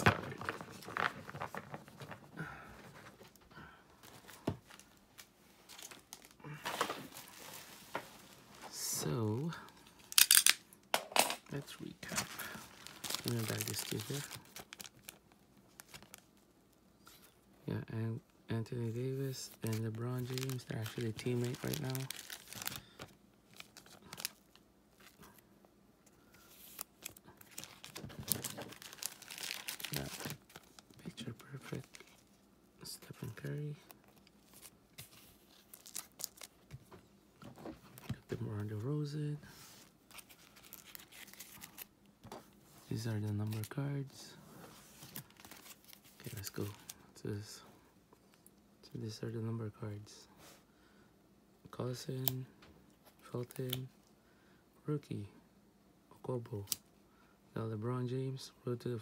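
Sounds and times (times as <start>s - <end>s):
cards rustling: 0.0s - 3.4s, 4.0s - 8.9s, 11.5s - 16.3s, 18.8s - 25.4s, 26.0s - 36.8s, 37.8s - 47.0s
plastic sleeves crinkling: 0.0s - 3.4s, 4.0s - 10.6s, 11.5s - 16.4s, 18.8s - 25.4s, 26.3s - 36.8s, 39.5s - 43.8s, 44.8s - 47.1s.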